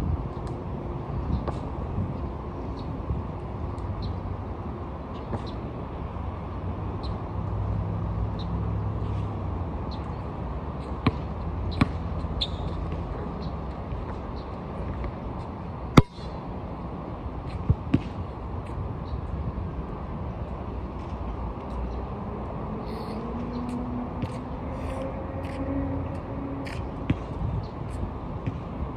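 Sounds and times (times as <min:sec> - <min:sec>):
basketball bouncing: 0:11.0 - 0:12.1.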